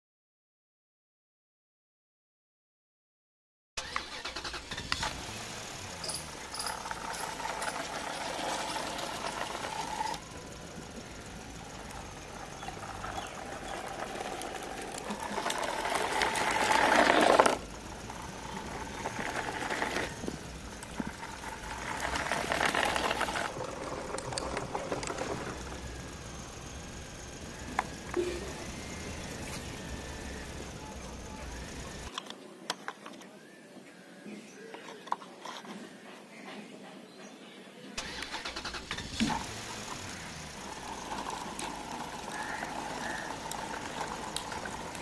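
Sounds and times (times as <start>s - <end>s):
toy tractor motor running: 3.8s - 32.1s, 38.0s - 45.0s
wheels rolling over concrete: 3.8s - 32.1s, 38.0s - 45.0s.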